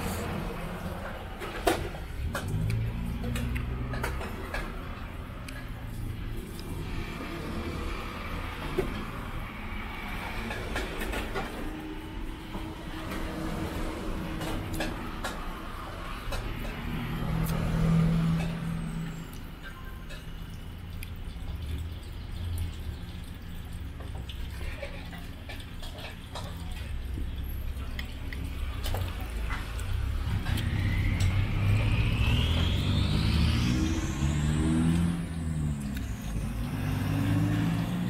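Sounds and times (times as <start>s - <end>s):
vehicle passing close: 0.0s - 23.8s, 27.3s - 38.0s
road traffic: 0.0s - 38.0s
rising whine: 29.8s - 38.0s.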